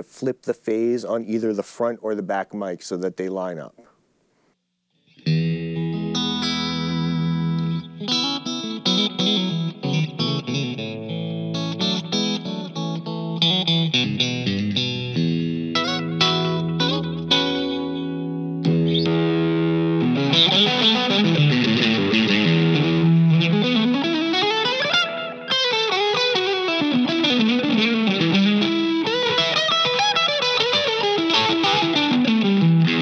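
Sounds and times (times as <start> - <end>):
distorted electric guitar solo: 5.0 - 33.0.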